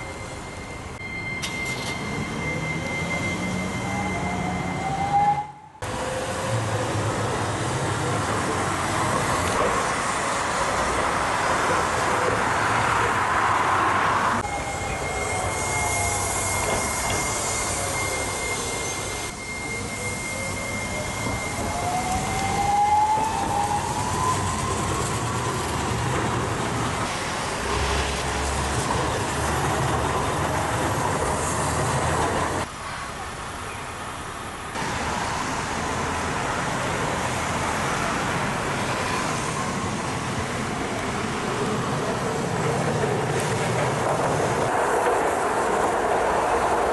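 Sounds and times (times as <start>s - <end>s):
steady high tone: 0.0s - 6.0s, 14.4s - 25.5s
city traffic: 0.0s - 46.9s
tram motor whine: 0.0s - 46.9s.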